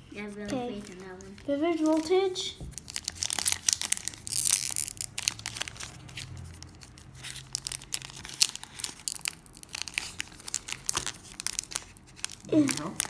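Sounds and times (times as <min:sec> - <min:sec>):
foil wrapper tearing and crinkling: 0:02.7 - 0:13.0.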